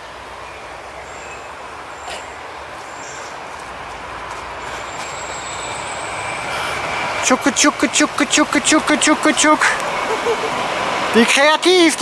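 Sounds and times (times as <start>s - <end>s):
train rolling past: 3.8s - 11.8s.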